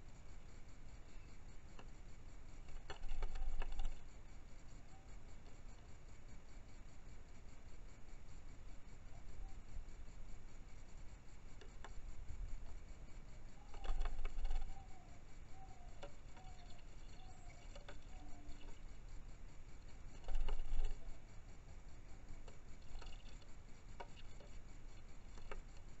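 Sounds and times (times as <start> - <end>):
wings flapping: 13.7 - 14.8.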